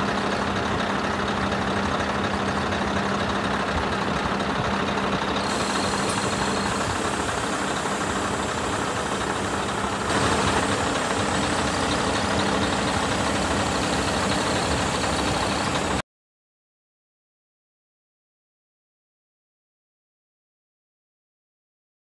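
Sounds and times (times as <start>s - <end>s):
diesel engine idling: 0.0s - 16.0s.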